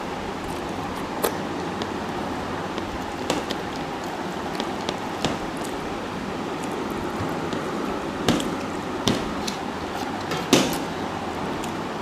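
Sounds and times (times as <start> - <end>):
steady background hiss: 0.0 - 12.0
fingers mixing rice on plate: 0.1 - 12.0
chewing close to microphone: 0.3 - 5.8.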